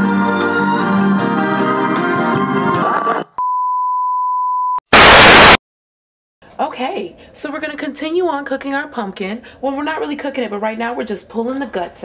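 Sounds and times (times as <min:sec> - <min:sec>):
tv static hiss: 0:04.9 - 0:05.6.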